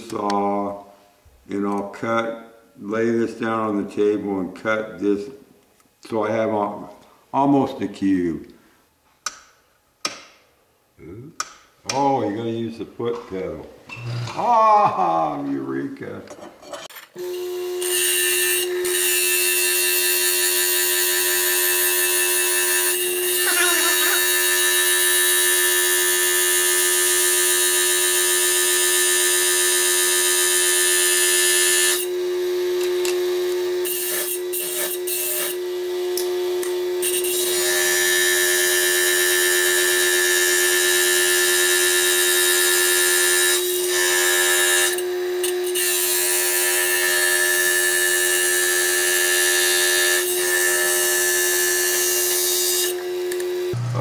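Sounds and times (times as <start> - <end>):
saw motor whine: 31.3 - 54.0
blade grinding stone: 33.8 - 35.6.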